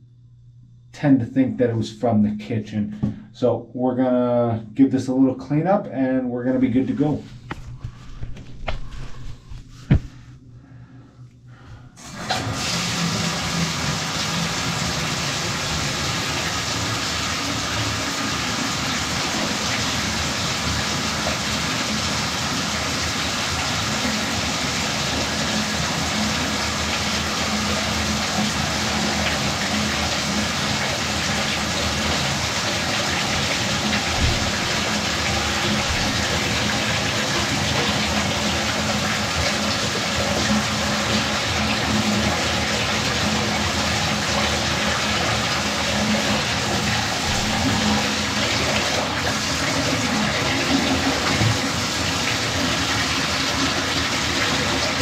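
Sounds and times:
water pouring into bathtub: 0:12.0 - 0:55.0.

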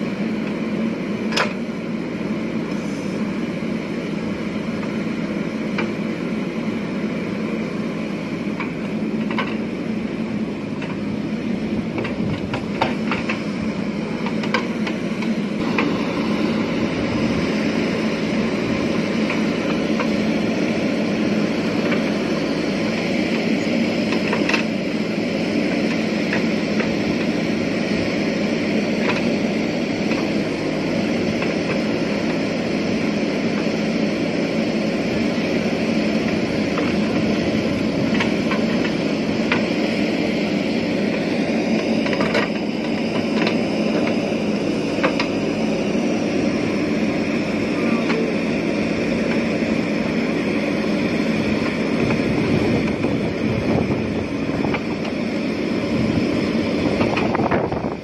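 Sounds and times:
diesel engine under load: 0:00.0 - 0:58.0
sharp clicks and knocks: 0:08.6 - 0:09.6, 0:12.0 - 0:13.5, 0:24.1 - 0:24.7, 0:41.8 - 0:44.2, 0:45.0 - 0:45.4.

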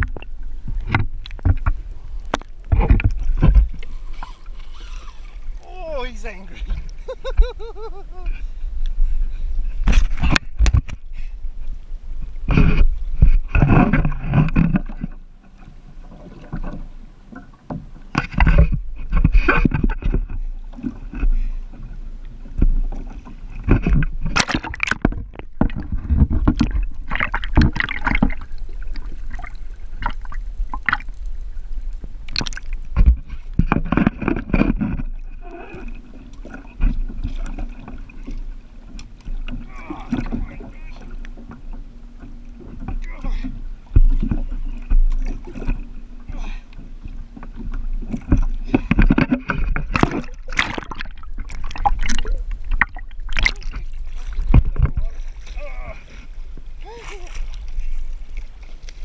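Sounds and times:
knocks against hull: 0:00.0 - 0:03.8, 0:17.7 - 0:21.4, 0:23.6 - 0:28.4, 0:32.4 - 0:35.2, 0:47.5 - 0:55.2
water sloshing and splashing: 0:00.0 - 0:59.0.

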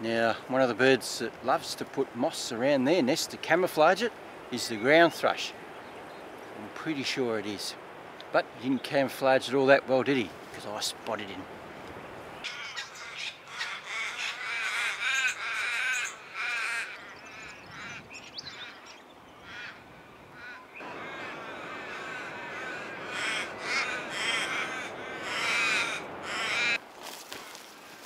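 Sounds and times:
crow cawing: 0:12.5 - 0:18.8, 0:19.4 - 0:19.8, 0:20.4 - 0:26.8.

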